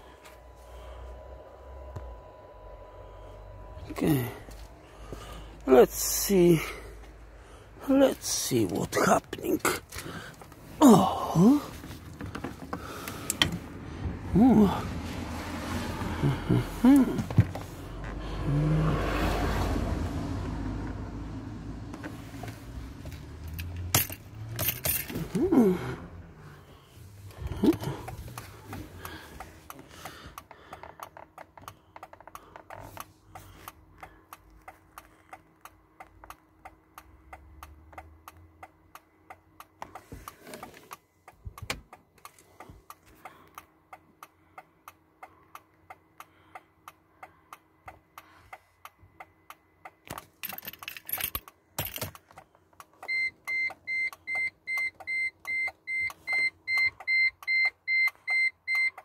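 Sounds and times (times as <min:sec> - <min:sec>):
sharp clicking in car: 0:27.6 - 0:50.6
electronic warning beep: 0:53.1 - 0:59.0.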